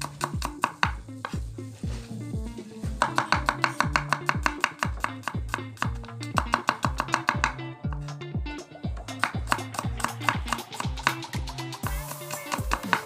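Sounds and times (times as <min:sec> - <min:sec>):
background music with beat and bass: 0:00.0 - 0:13.0
cleaver chopping on wooden board: 0:03.0 - 0:07.6.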